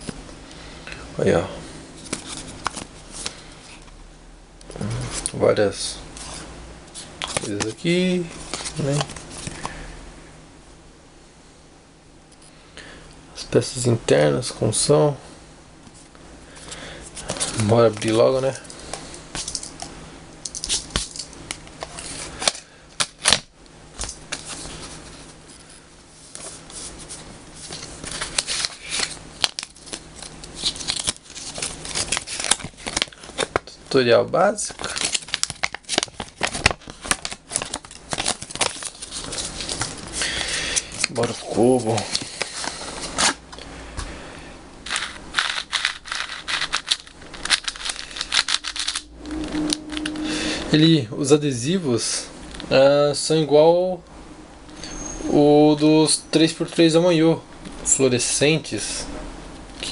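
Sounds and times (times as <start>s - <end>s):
paper rustling: 24.0s - 33.7s, 34.8s - 43.4s, 44.8s - 49.1s.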